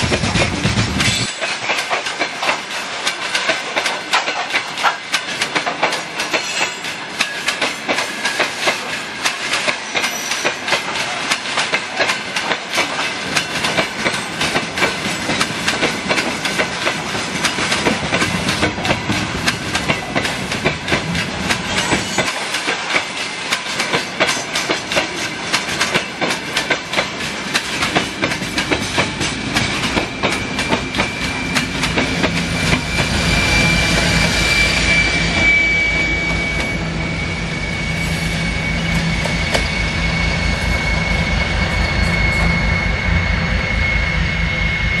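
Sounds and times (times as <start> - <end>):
train wheels clicking over rail joints: 0.0 - 34.3
diesel locomotive engine pulsing: 0.0 - 45.0
high-pitched whine: 29.6 - 45.0.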